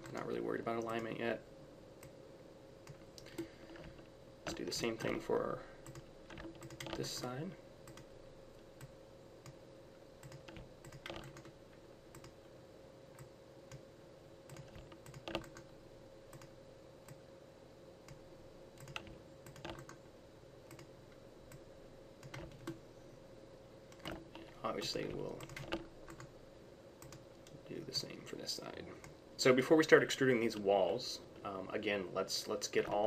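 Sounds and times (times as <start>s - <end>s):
faint steady hum: 0.0s - 33.0s
computer mouse and keyboard clicks: 2.8s - 5.2s, 5.8s - 8.1s, 10.2s - 12.4s, 14.5s - 15.7s, 16.3s - 17.2s, 18.8s - 20.0s, 20.7s - 20.9s, 22.2s - 22.8s, 23.9s - 26.3s.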